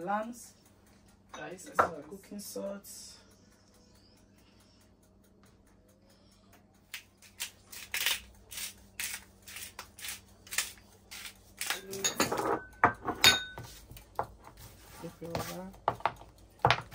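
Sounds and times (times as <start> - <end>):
utensils clicking and tapping: 6.5 - 16.9
dishes clattering: 11.8 - 14.3.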